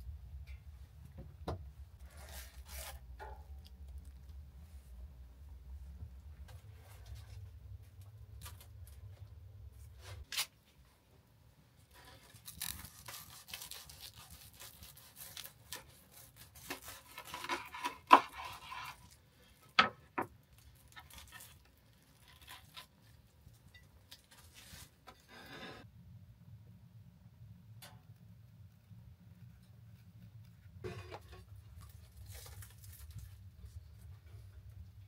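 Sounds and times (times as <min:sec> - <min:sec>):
knife sawing through crunchy bread: 0:12.2 - 0:19.1.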